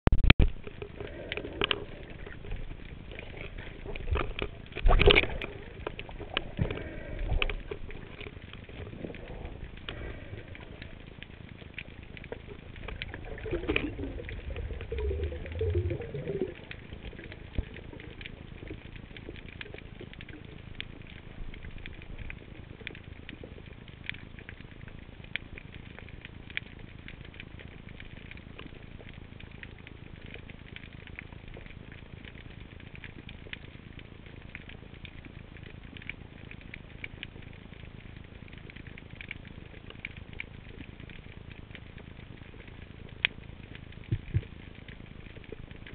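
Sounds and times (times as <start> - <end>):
low underwater rumbling: 0.1 - 45.9
snapping shrimp crackle: 0.4 - 23.5.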